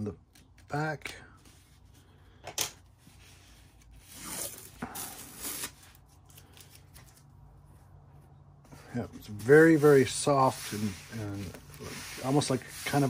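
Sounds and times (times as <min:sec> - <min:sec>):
canvas rustling across table: 0:08.7 - 0:13.0.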